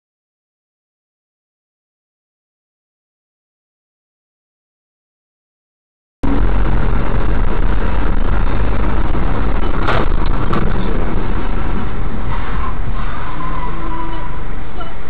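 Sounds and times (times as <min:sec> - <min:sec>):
car road and engine rumble: 0:06.2 - 0:15.0.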